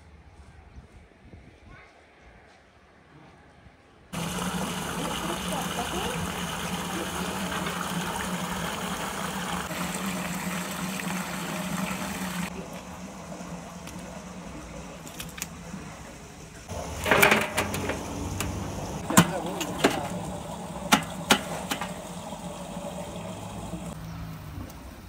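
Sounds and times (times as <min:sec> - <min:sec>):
loud splashing in metal barrel: 0:04.2 - 0:12.5, 0:16.7 - 0:24.0.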